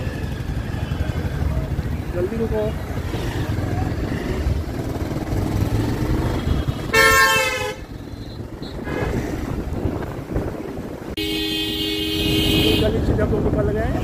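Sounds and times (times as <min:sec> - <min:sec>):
road traffic rumble: 0:00.0 - 0:14.0
vehicle horn blast: 0:06.6 - 0:09.1, 0:11.2 - 0:13.0.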